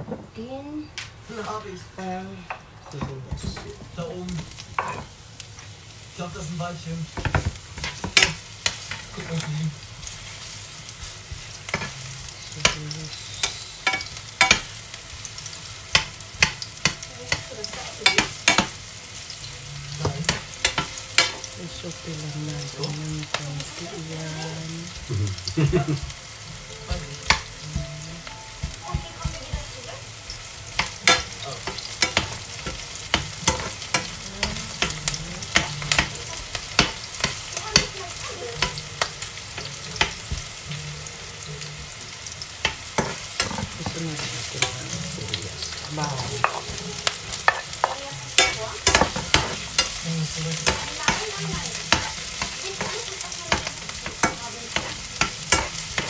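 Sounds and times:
onions sizzling in oil: 3.3s - 56.0s
spatula scraping a pan: 43.0s - 56.0s.

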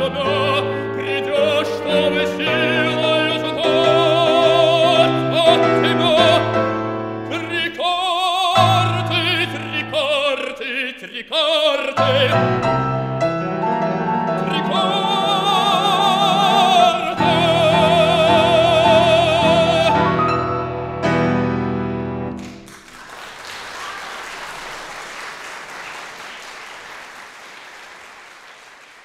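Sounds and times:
baritone singing with vibrato: 0.0s - 13.0s, 14.0s - 20.7s
grand piano: 0.0s - 25.7s
audience applause: 22.4s - 29.0s.

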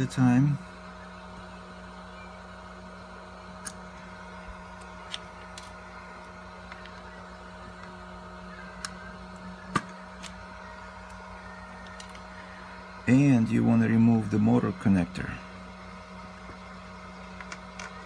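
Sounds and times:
steady electronics hum: 0.0s - 18.0s.

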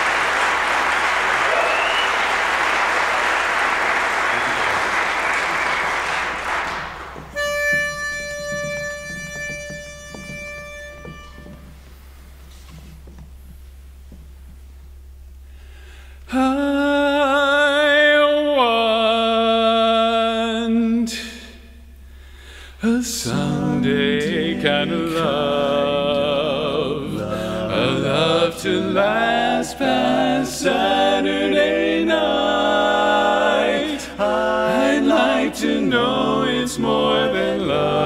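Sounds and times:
audience applauding: 0.0s - 7.4s
pitch pipe note: 7.4s - 11.8s
a cappella quartet singing: 22.8s - 38.0s.

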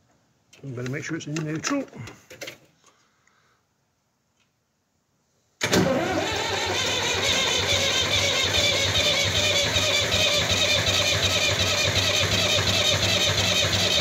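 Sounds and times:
tractor diesel engine starting: 5.6s - 14.0s.

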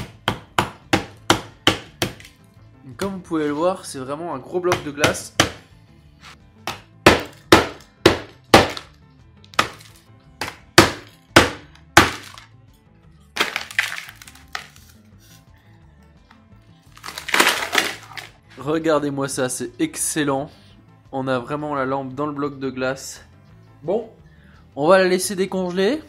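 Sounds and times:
hammer cracking ice: 7.1s - 8.9s, 9.6s - 12.5s, 13.4s - 14.8s, 17.0s - 18.3s
ice clattering in container: 13.4s - 14.7s, 17.0s - 18.3s.

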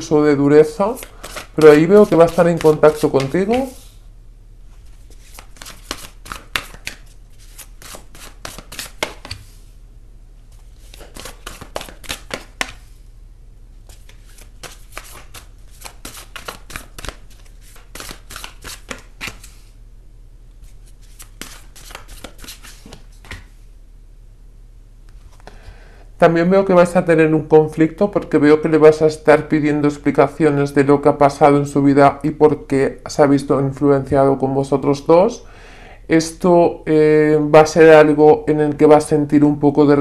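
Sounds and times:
cards being shuffled: 0.7s - 4.0s, 4.8s - 9.6s, 10.5s - 12.9s, 13.8s - 19.7s, 20.6s - 23.6s.

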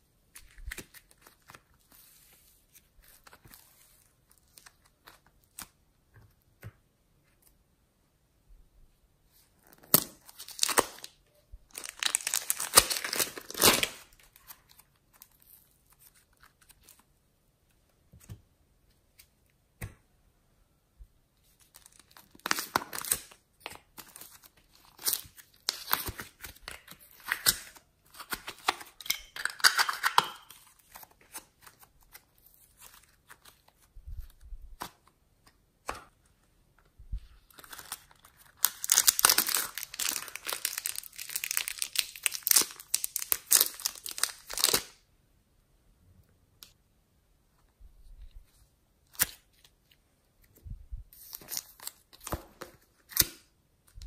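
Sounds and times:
plastic film crinkling and tearing: 9.9s - 17.0s, 37.5s - 45.0s.

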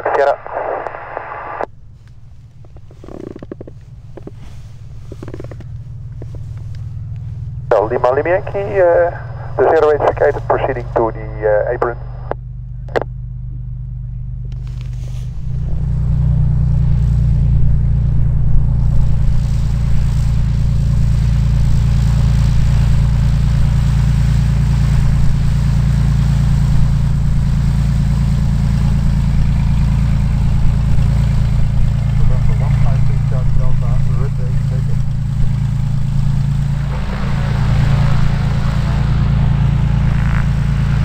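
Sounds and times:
plane engine and propeller: 0.0s - 41.0s.

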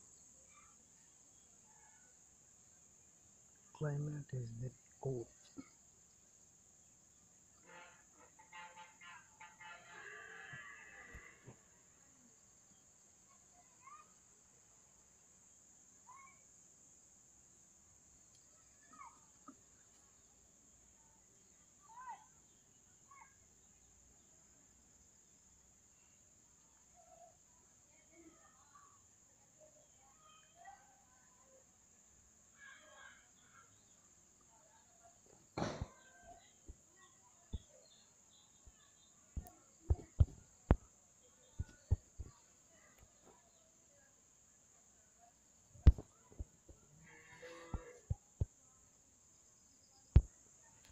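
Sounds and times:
insects chirring: 0.0s - 50.9s
short knocks and thumps: 35.6s - 36.0s.

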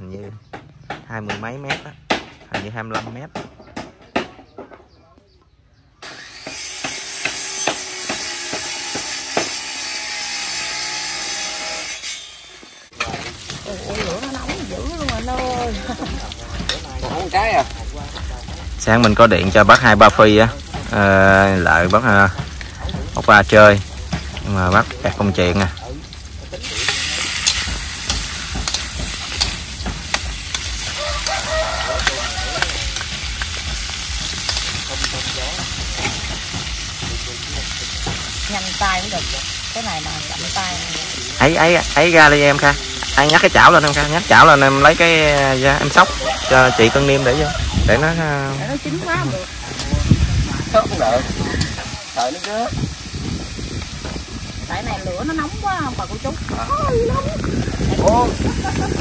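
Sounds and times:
food sizzling in a hot pan: 6.2s - 59.0s
utensil scraping and clicking on pan: 26.7s - 38.3s
rooster crowing: 30.7s - 33.2s, 45.8s - 48.1s.

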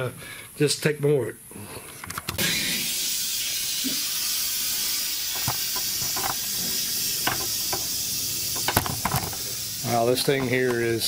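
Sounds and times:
compressed air blow gun hissing: 2.4s - 11.0s.

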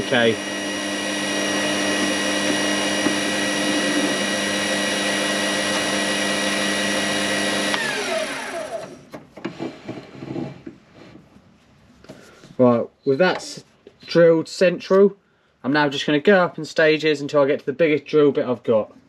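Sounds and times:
lathe whine: 0.0s - 10.5s.

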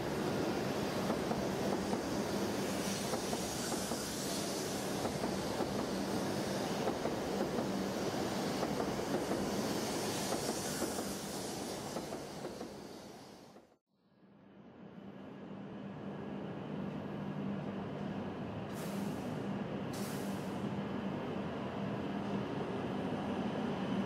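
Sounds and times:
hiss: 0.0s - 13.8s, 18.7s - 20.6s
train wheels rumbling on rail: 0.0s - 13.8s.

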